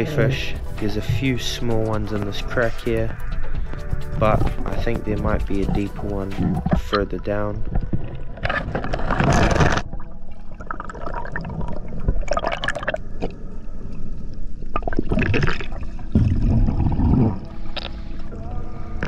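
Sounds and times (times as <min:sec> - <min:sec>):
water gurgling and bubbling: 0:04.2 - 0:13.4, 0:14.5 - 0:18.0.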